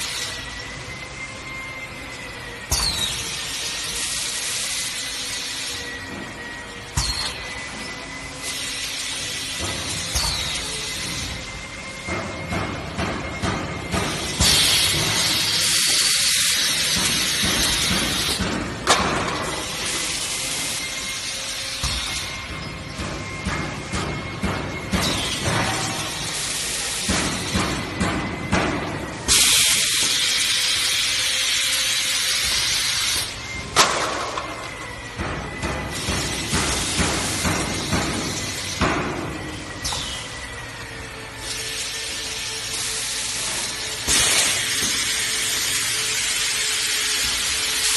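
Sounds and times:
loud steady machine hiss: 0.0s - 47.9s
machine mechanical clicks and knocks: 21.8s - 26.3s.

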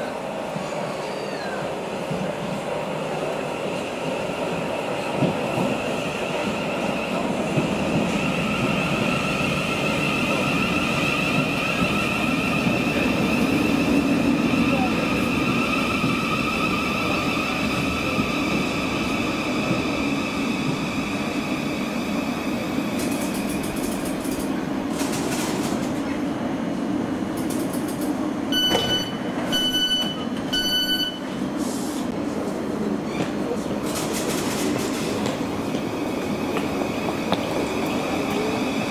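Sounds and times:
electric train rumble: 0.0s - 38.9s
short electronic beeps: 28.6s - 31.2s.

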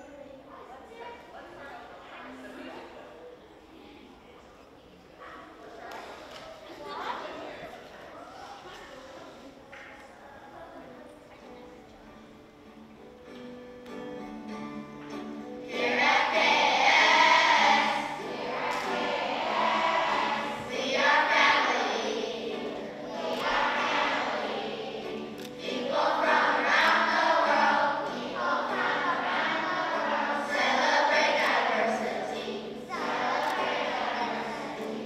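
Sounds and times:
instrumental accompaniment: 12.3s - 35.0s
children singing: 15.6s - 35.0s.

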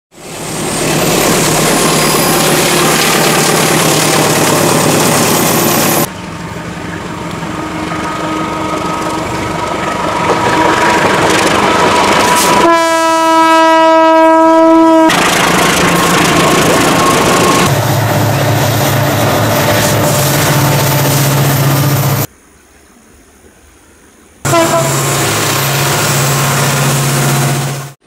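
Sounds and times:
diesel locomotive approaching: 0.1s - 22.3s, 24.4s - 28.0s
passing train: 0.1s - 22.4s, 23.0s - 28.0s
locomotive horn blast: 6.9s - 11.1s, 11.7s - 15.3s, 24.5s - 28.0s.

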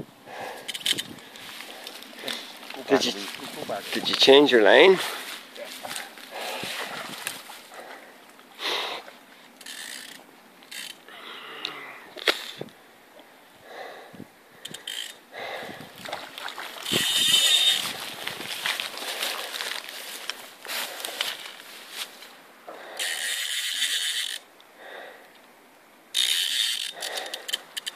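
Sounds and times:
fishing reel ratchet buzzing: 0.7s - 1.1s, 9.6s - 11.1s, 14.6s - 15.2s, 16.8s - 17.9s, 22.9s - 24.5s, 26.1s - 27.9s.

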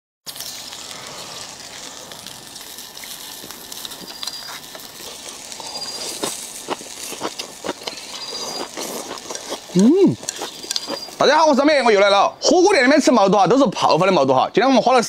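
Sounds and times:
rushing watery hiss: 0.3s - 7.2s
man chewing wetly: 3.0s - 11.2s
bird chirps: 4.1s - 4.6s, 7.9s - 8.8s, 10.3s - 12.0s.

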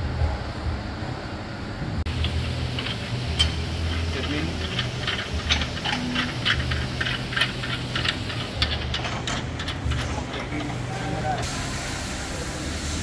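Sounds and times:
low hum: 0.1s - 12.5s
ratchet wrench clicking: 2.1s - 10.8s.

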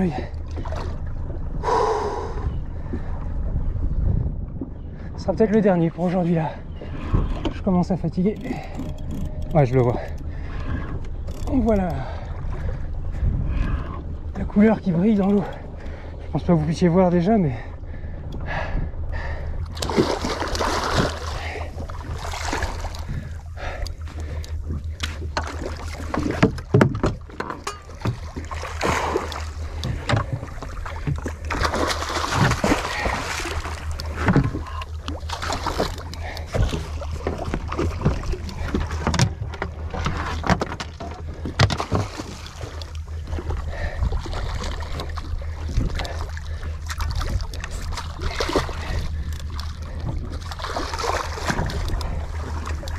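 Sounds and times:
boat engine hum: 0.0s - 52.9s
water noise: 0.0s - 52.9s
wind: 0.0s - 52.9s.

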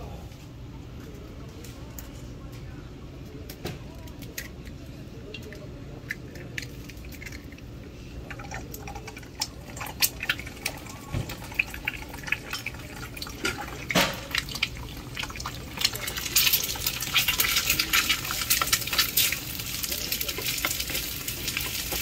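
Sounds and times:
egg frying crackling and spitting: 5.3s - 22.0s
rice sizzling in a pan: 9.4s - 22.0s.

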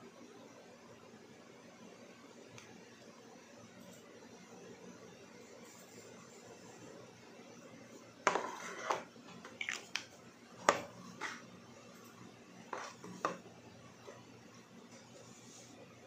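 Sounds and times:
cardboard box set on table: 8.3s - 9.1s.

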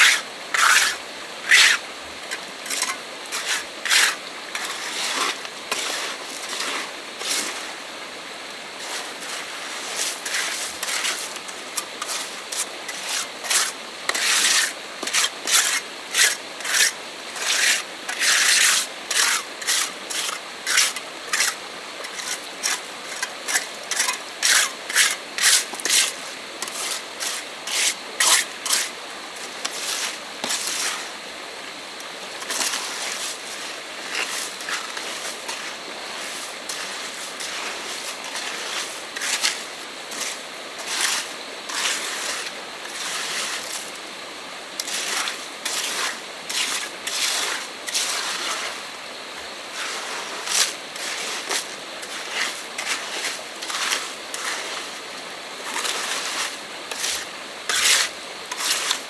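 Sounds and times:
hand tool scraping: 0.0s - 7.6s, 8.8s - 31.2s, 32.4s - 44.0s, 44.8s - 48.8s, 49.7s - 55.0s, 55.6s - 59.0s.

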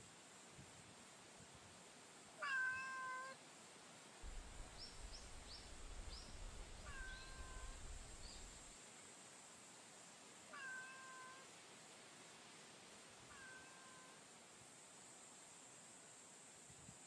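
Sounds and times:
cat meowing: 2.4s - 3.4s, 6.8s - 7.8s, 10.5s - 11.5s, 13.3s - 14.2s.

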